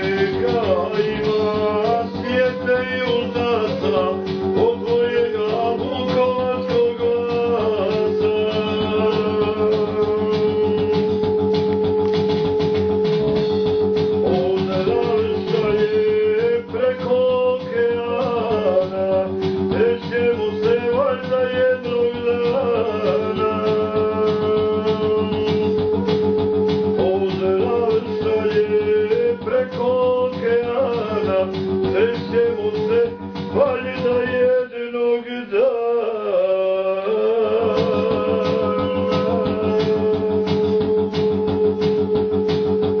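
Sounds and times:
person singing: 0:00.0 - 0:12.2, 0:13.1 - 0:26.2, 0:26.9 - 0:43.0.

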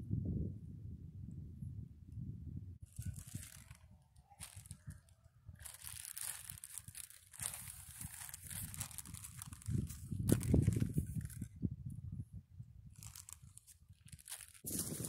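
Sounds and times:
plastic sleeve crinkling: 0:02.8 - 0:11.6, 0:12.9 - 0:15.0.

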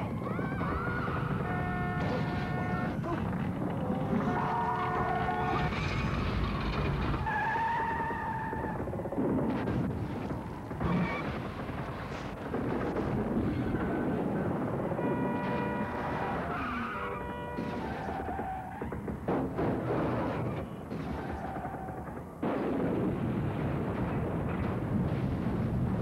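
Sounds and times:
cars skidding: 0:04.1 - 0:08.9, 0:13.3 - 0:22.1.

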